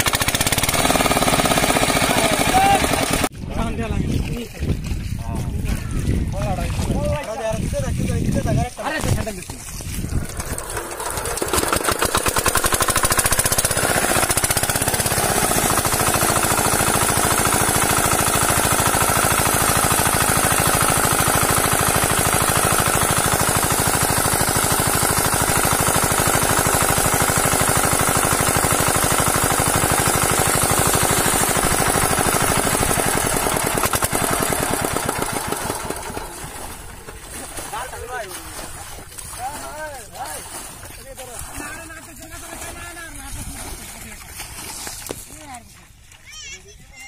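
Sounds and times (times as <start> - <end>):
diesel engine knocking: 0.0 - 3.3, 10.3 - 36.6
water gushing from pump: 0.0 - 3.7, 5.5 - 46.4.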